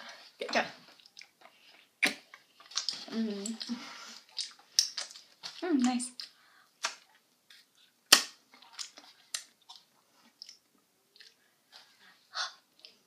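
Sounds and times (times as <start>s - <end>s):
wet mouth noises: 0.9s - 7.2s
biting frozen ice pops: 8.1s - 9.5s.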